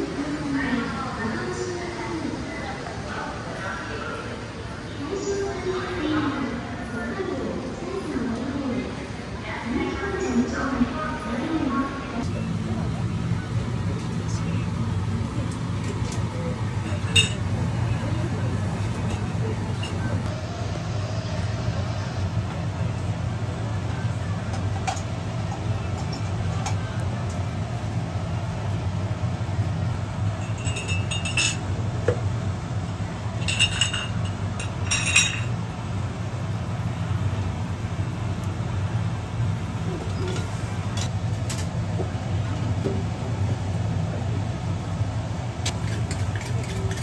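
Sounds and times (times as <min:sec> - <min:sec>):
metal tools clinking on pan: 0:30.4 - 0:31.6, 0:33.4 - 0:35.5.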